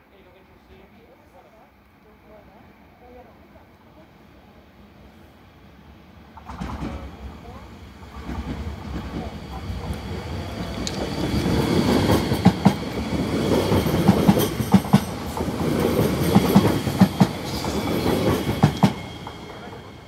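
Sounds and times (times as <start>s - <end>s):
train wheels rumbling on rails: 6.2s - 20.0s.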